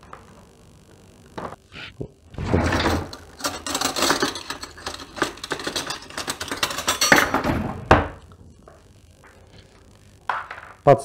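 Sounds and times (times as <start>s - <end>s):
cutlery clinking in drawer: 2.6s - 7.5s.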